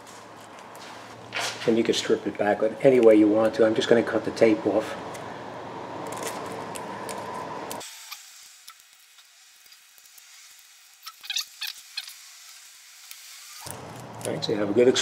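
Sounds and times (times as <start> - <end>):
steady hiss: 7.8 - 15.0.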